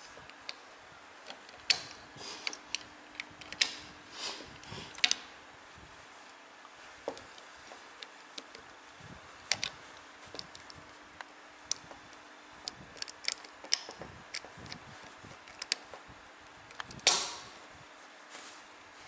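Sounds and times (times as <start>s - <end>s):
small metal parts clicking: 12.7s - 15.9s.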